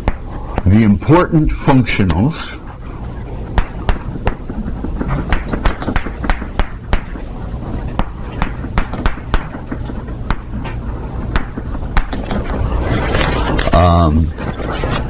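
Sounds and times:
steady low hum: 0.0 - 15.0
chalk tapping on chalkboard: 3.6 - 7.2, 8.0 - 12.4.

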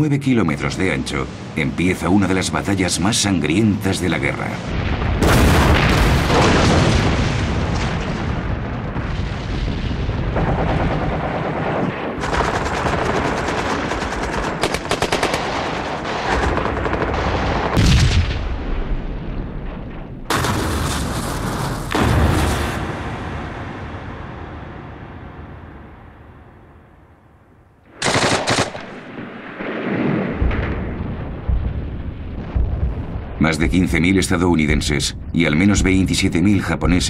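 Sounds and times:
heavy booms: 0.7 - 14.5, 15.4 - 27.1, 28.0 - 37.0
machine-gun fire: 10.3 - 18.4, 20.3 - 23.3, 27.9 - 31.5
rifle shots: 11.8 - 18.3, 27.9 - 31.0
steady battle din: 19.6 - 26.0.

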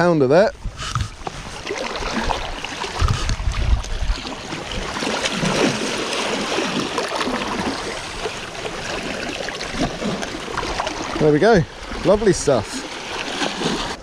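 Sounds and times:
wind rumble on microphone: 0.5 - 1.6, 2.9 - 4.9
sea water sloshing around rocks: 0.6 - 14.0.

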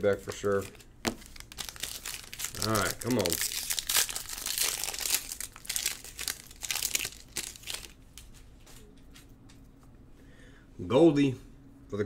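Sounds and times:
foil wrapper crinkling: 0.0 - 8.0.

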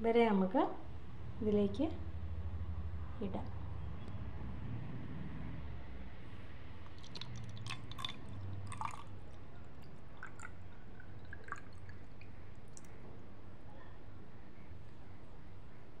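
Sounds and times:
faint low hum: 0.0 - 16.0
water trickling into glass jar: 6.8 - 12.9
small splashes: 6.8 - 13.0.

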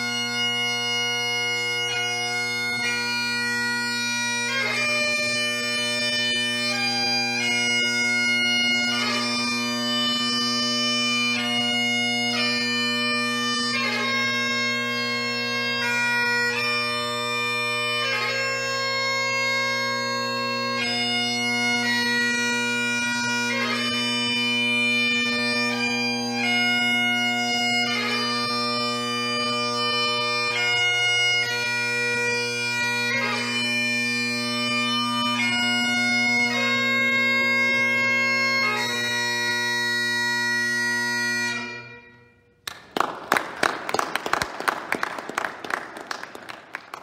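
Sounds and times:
bagpipe playing: 0.0 - 47.0
audience applause: 42.7 - 47.0.

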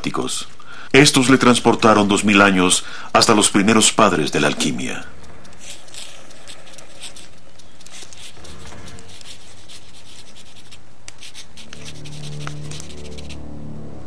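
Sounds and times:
quill pen scratching on paper: 5.4 - 13.4.

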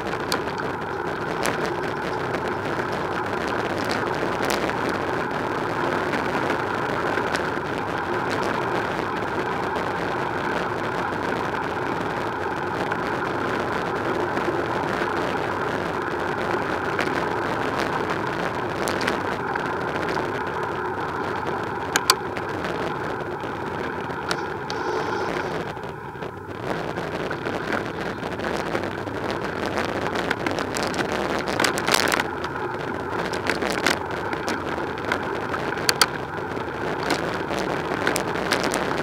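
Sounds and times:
bicycle rolling noise: 0.0 - 39.0
bike clicks and rattles: 21.9 - 22.3, 33.3 - 36.2.

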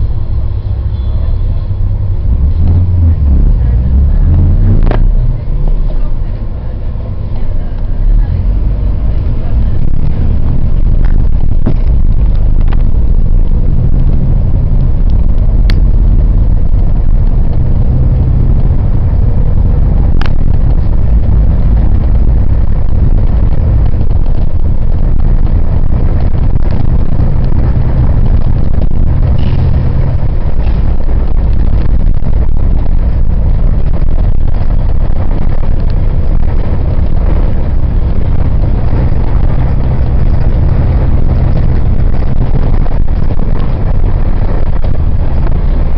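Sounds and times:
engine and road noise rumble: 0.0 - 45.9.

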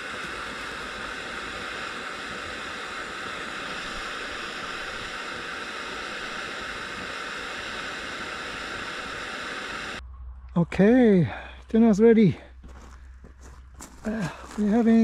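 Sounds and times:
gas stove burner hissing: 0.0 - 10.0.

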